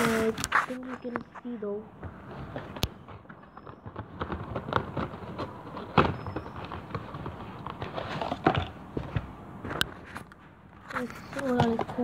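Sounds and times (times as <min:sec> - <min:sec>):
cardboard packaging being handled: 0:00.0 - 0:01.2, 0:03.4 - 0:09.2.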